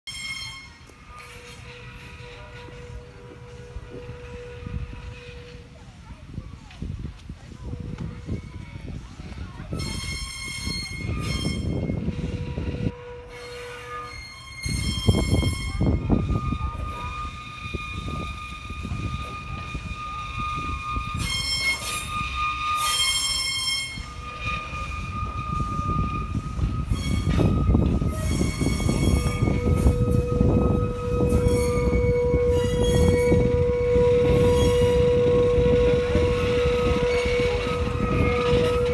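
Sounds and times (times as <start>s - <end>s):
steam locomotive whistle: 0.1s - 5.7s, 9.7s - 38.9s
wheel flanges squealing: 0.1s - 6.7s, 7.6s - 38.9s
rumble of moving train: 0.1s - 38.9s
wheels clicking over rail joints: 12.8s - 38.9s.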